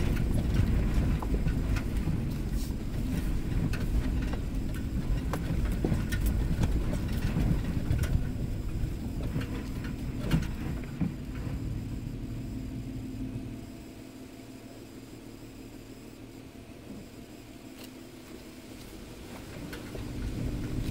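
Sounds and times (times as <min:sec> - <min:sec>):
knocks and rattles: 0:00.0 - 0:11.7
vehicle low rumble: 0:00.0 - 0:20.9.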